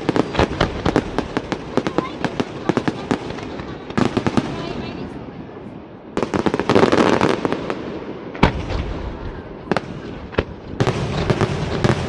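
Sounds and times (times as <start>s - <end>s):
heavy firework boom: 8.4s - 12.0s.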